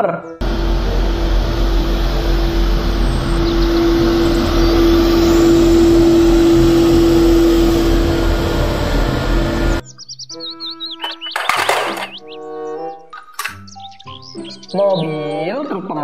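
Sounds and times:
steady whining tone: 0.4s - 9.8s
street sweeper engine rumble: 0.4s - 9.8s.

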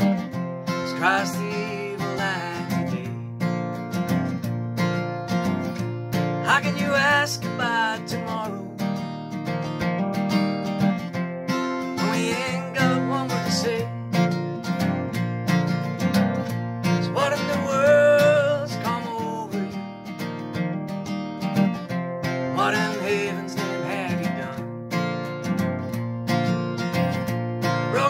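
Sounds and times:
acoustic guitar strumming: 0.0s - 28.0s
man singing: 0.8s - 3.3s, 6.4s - 8.8s, 12.0s - 14.0s, 17.0s - 19.8s, 22.5s - 24.6s.

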